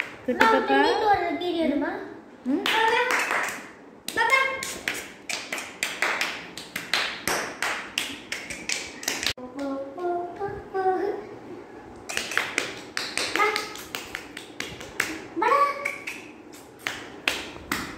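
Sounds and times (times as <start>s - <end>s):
hands clapping rhythmically: 0.0s - 0.6s, 2.6s - 9.7s, 12.1s - 17.9s.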